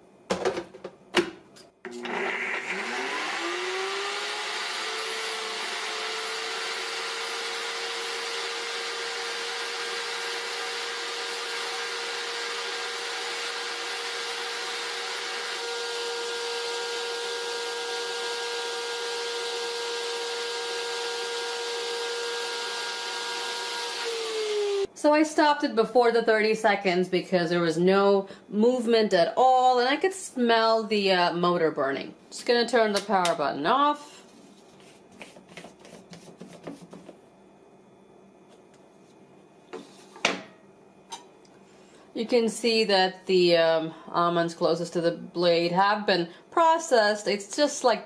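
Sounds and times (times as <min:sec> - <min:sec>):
blender motor whining: 0:01.9 - 0:24.9
higher motor whine: 0:01.9 - 0:24.9.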